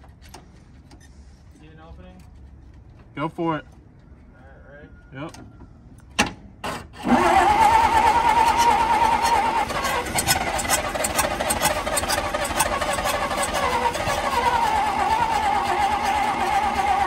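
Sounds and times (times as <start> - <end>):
truck engine firing: 6.2 - 17.0
starter motor whining: 6.6 - 17.0.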